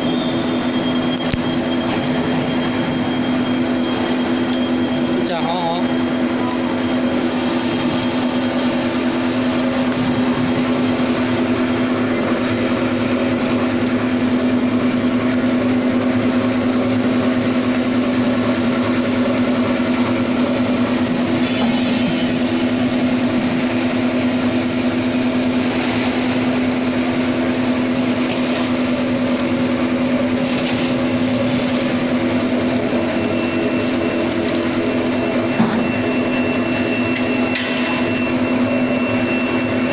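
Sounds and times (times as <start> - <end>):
oil press machine humming: 0.0 - 39.9.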